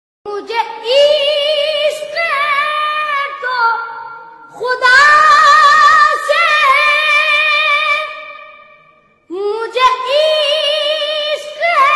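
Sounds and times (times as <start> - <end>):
boy singing solo: 9.3 - 11.9.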